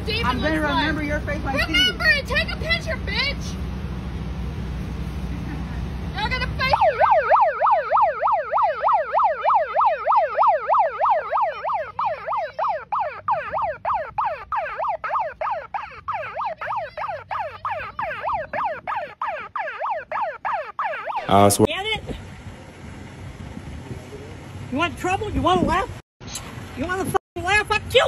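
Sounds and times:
siren yelping: 6.6s - 21.7s.

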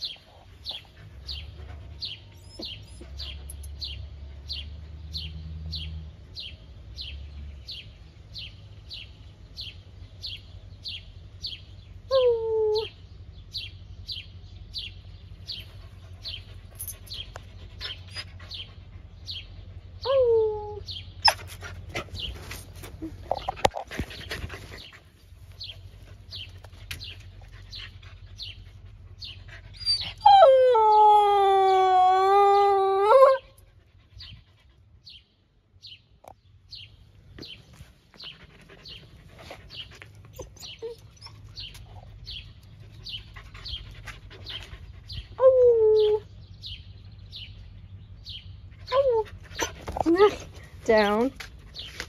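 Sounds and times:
puppy howling: 29.8s - 33.5s.

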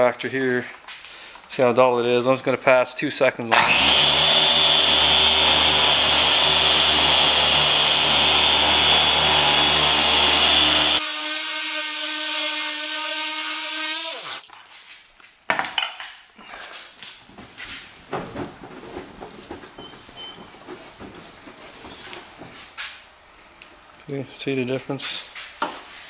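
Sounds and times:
electric polisher motor whining: 3.5s - 14.5s
motor winding down: 3.5s - 14.5s.

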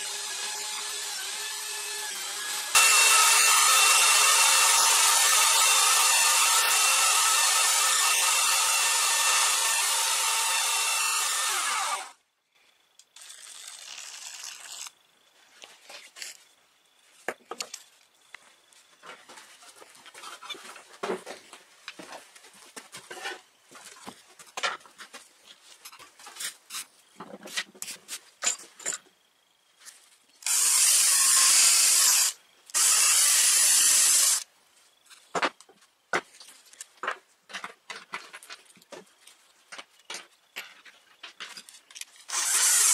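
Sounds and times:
electric belt sander running: 0.0s - 12.1s
power tool bursts: 0.0s - 12.2s, 30.4s - 34.4s, 42.3s - 42.9s.

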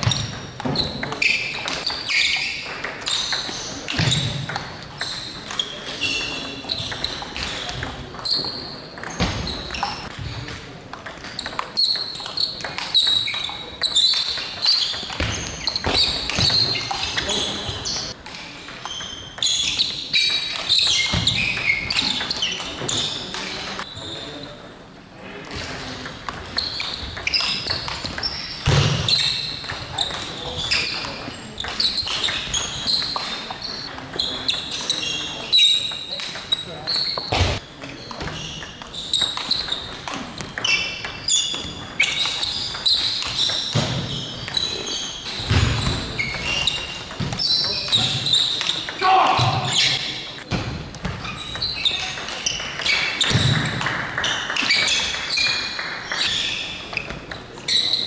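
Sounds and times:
table tennis ball hits: 0.0s - 23.6s, 25.6s - 57.5s
shoes squeaking on floor: 0.0s - 24.6s, 25.5s - 58.0s.

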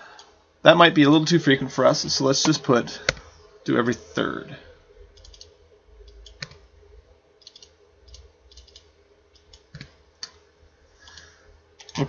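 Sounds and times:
computer mouse clicks: 5.2s - 6.6s, 7.4s - 10.4s, 11.0s - 12.0s.

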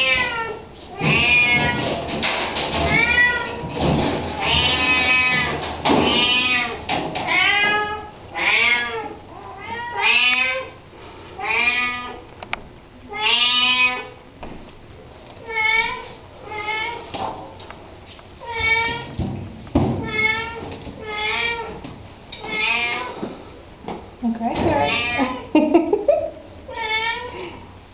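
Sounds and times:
cat meowing: 0.0s - 1.8s, 6.1s - 10.7s.

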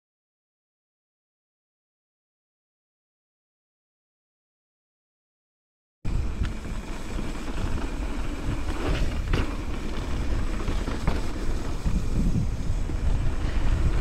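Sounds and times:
bike rattling: 6.1s - 14.0s
wind rumbling on microphone: 6.1s - 14.0s.

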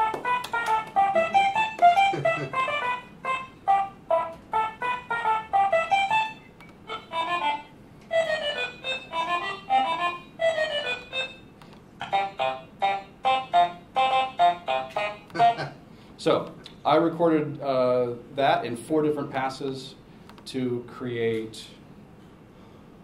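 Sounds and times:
eight-bit computer music: 0.0s - 11.4s, 12.0s - 15.6s.

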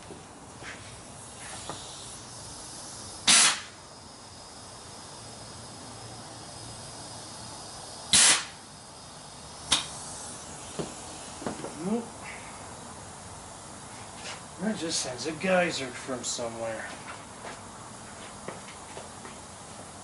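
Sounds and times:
compressed air blasts: 0.6s - 14.7s.

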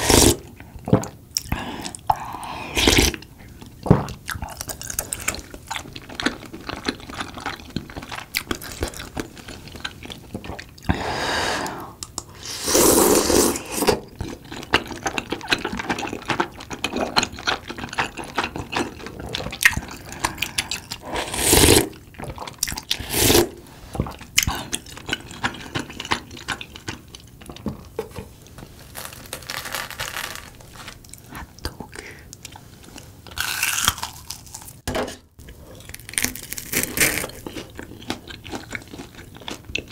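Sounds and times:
slurping broth: 10.9s - 14.0s, 18.9s - 22.0s, 22.9s - 24.2s.

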